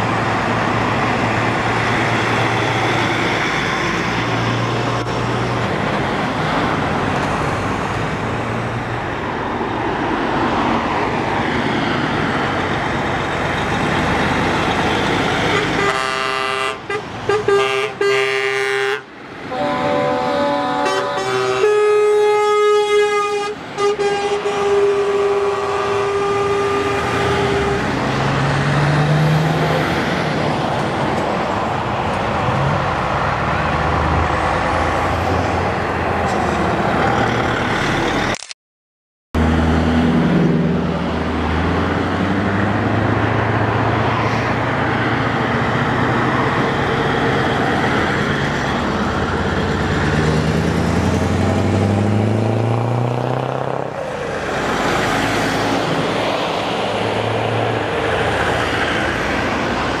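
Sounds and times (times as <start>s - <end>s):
trucks passing close by: 0.0s - 38.4s, 39.4s - 60.0s
truck horn steady note: 15.5s - 27.9s.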